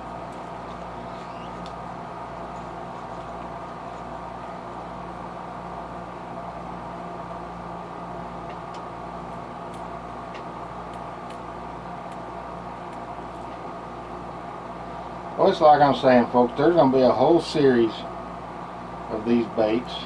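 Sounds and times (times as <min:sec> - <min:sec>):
motor humming: 0:00.0 - 0:14.8.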